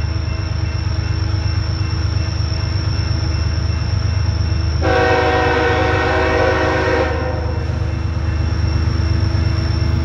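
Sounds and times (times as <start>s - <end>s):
diesel locomotive engine rumble: 0.0s - 10.0s
train air horn chord: 4.8s - 7.6s.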